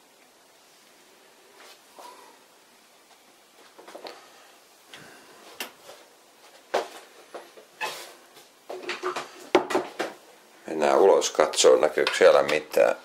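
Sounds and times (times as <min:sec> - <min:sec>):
rustling: 0:00.8 - 0:10.3
knocks of objects being handled: 0:08.7 - 0:10.2, 0:12.0 - 0:12.6.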